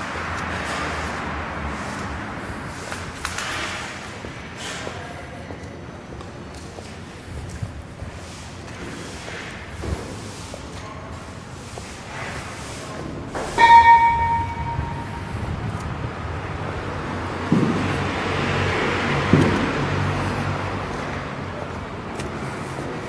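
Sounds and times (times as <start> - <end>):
sharp metallic clang: 13.5 - 15.4.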